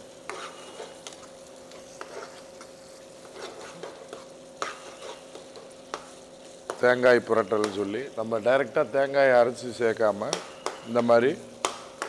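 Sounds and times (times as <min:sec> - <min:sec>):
spatula scraping frying pan: 0:00.0 - 0:06.8
light sizzle of frying: 0:00.0 - 0:12.0.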